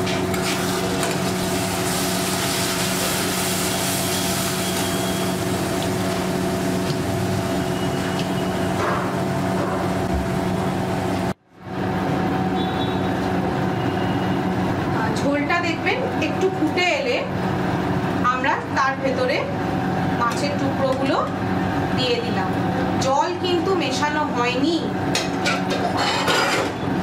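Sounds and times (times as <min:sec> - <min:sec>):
gravy sizzling: 0:00.0 - 0:11.4.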